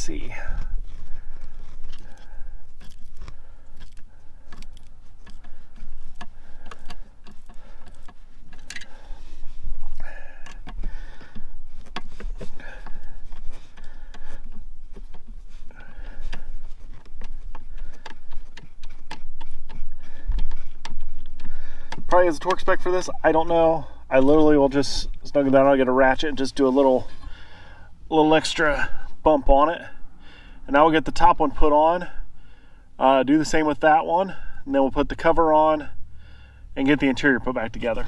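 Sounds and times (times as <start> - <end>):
small clicks and taps: 13.8 - 22.6.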